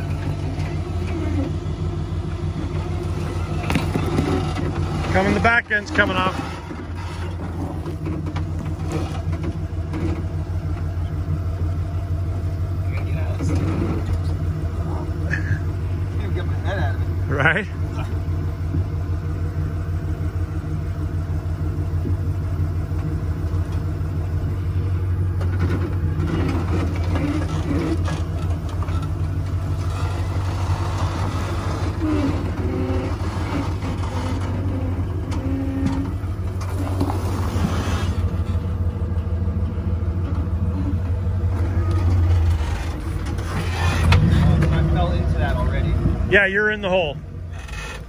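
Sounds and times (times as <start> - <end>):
engine running low and steady: 0.0 - 48.0
scraping and clattering on rocks: 3.4 - 10.3.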